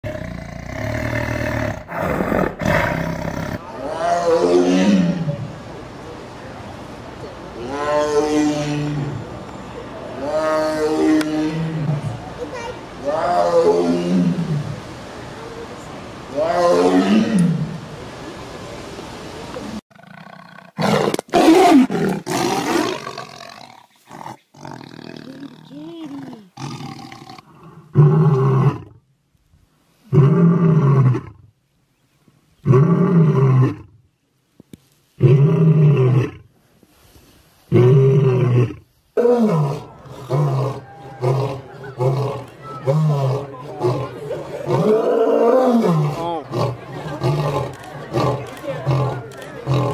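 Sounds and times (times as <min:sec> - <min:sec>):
lion roaring: 0:37.7 - 0:49.9
tiger roaring: 0:37.7 - 0:49.9.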